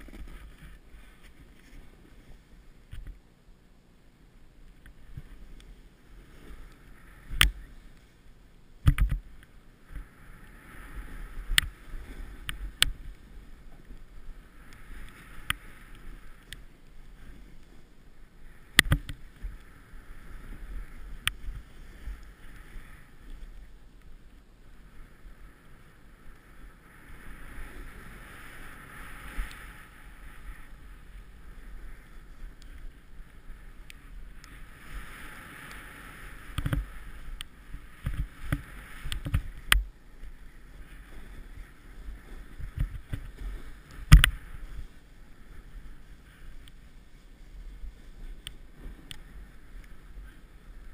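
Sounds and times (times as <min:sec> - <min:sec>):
wind rumble on microphone: 0:00.0 - 0:03.2, 0:04.7 - 0:50.9
snowboard hissing through powder: 0:25.1 - 0:32.5.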